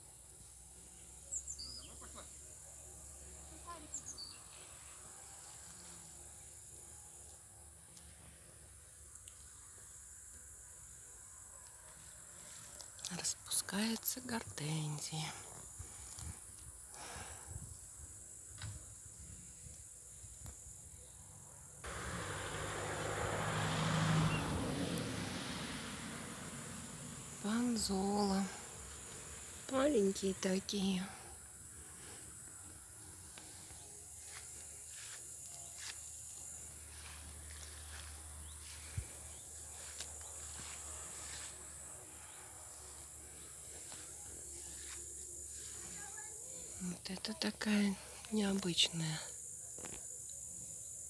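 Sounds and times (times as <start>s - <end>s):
insects chirring: 0.9s - 51.0s
motor vehicle engine hum: 21.8s - 32.1s, 32.8s - 46.0s.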